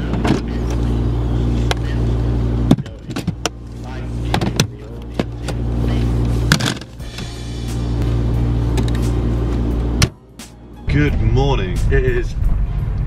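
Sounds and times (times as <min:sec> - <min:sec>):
plastic cases clunking: 0:00.0 - 0:00.8, 0:02.7 - 0:03.6, 0:04.3 - 0:05.6, 0:06.5 - 0:07.0
car engine idling: 0:00.0 - 0:13.0.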